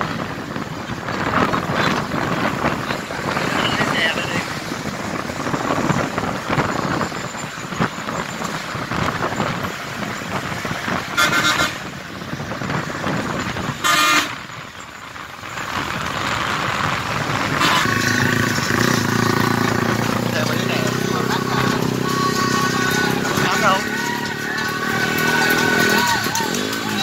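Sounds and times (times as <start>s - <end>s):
road and wind noise: 0.0s - 27.0s
steady horn-like tone: 11.1s - 11.9s, 13.8s - 14.4s
vehicle horn blasts: 11.1s - 11.9s, 13.8s - 14.5s, 17.5s - 18.2s, 21.9s - 23.6s.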